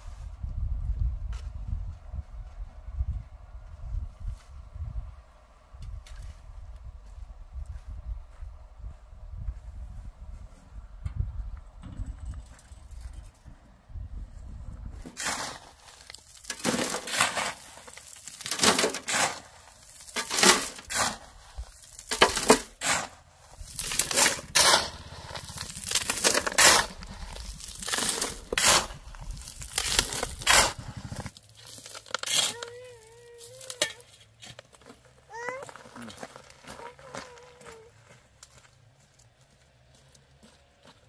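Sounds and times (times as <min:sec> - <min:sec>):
gravel clattering into metal wheelbarrow: 0:15.0 - 0:35.0
shovel scraping gravel: 0:15.0 - 0:37.9.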